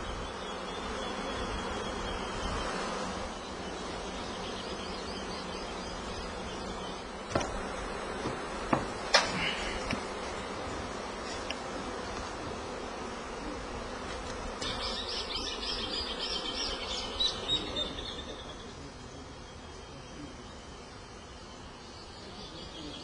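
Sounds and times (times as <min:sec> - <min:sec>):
honeybees buzzing: 0:00.0 - 0:23.0
knocks of wooden hive boxes: 0:07.1 - 0:12.8.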